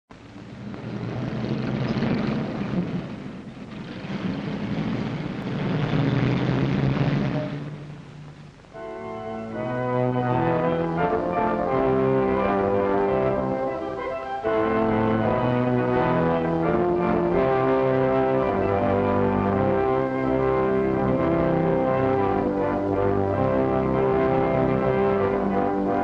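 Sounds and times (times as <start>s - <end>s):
rushing noise: 0.1s - 26.0s
low held tones: 0.2s - 26.0s
orchestra playing title music: 8.8s - 26.0s.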